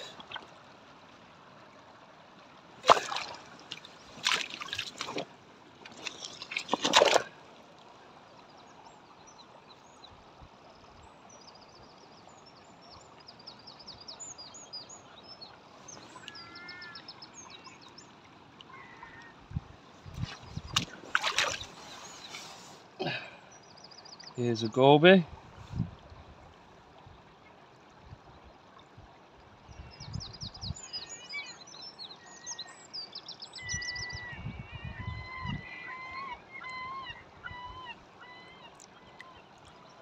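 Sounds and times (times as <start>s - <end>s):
water sloshing in rock pool: 0.0s - 8.8s, 19.8s - 23.3s.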